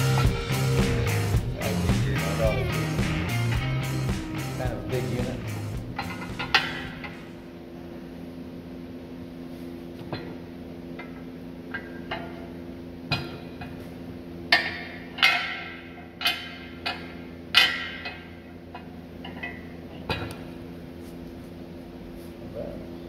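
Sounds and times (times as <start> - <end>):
steady low hum: 0.0 - 23.0
metal clanks with ringing: 6.0 - 7.3.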